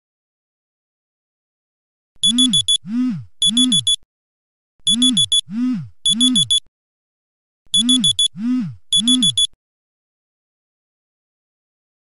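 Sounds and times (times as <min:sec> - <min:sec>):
smartphone alarm beeping: 0:02.2 - 0:02.8, 0:03.4 - 0:04.0, 0:04.8 - 0:05.5, 0:06.1 - 0:06.7, 0:07.7 - 0:09.6.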